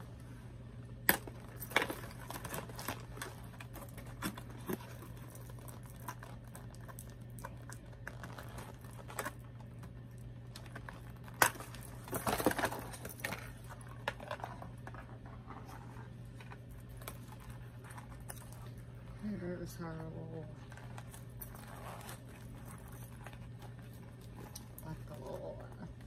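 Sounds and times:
low hum: 0.0 - 26.0
plastic packaging crinkling: 1.0 - 19.2.

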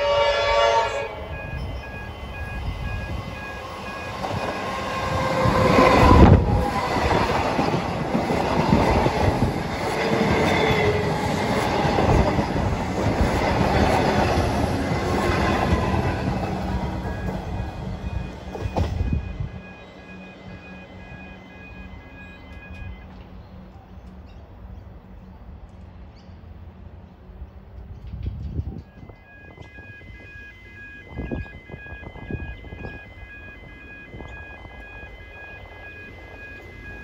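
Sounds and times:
train wheels clattering on rails: 3.0 - 19.7.

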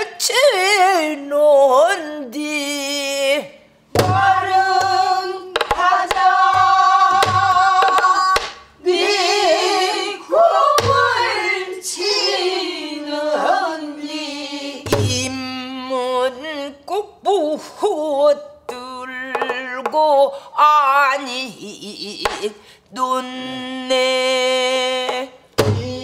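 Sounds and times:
woman singing folk song: 0.0 - 8.5, 14.8 - 26.0.

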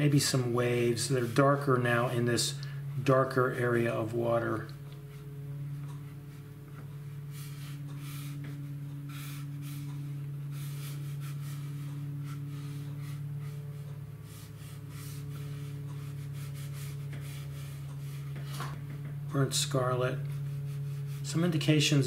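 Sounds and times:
low electrical hum: 0.0 - 22.0
brush scratching on paper: 1.0 - 1.7, 14.2 - 18.6, 20.3 - 21.5.

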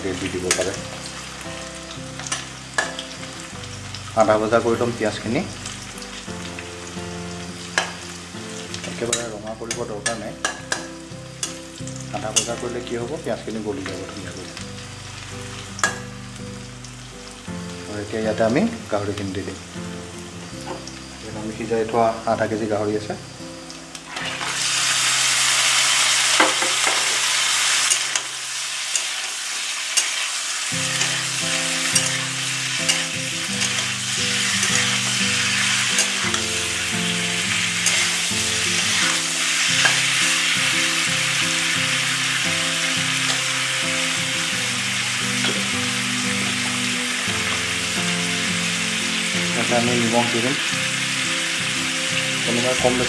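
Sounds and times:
meat frying in oil: 0.0 - 53.0
metal spatula scraping pan: 37.8 - 38.3.

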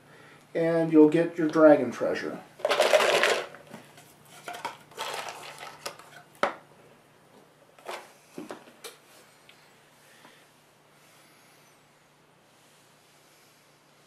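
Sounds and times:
tokens rattling in a cardboard box: 2.6 - 3.6, 4.4 - 5.8.

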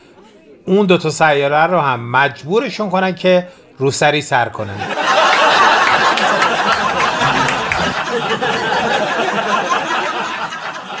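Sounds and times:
audience laughing: 4.8 - 11.0.

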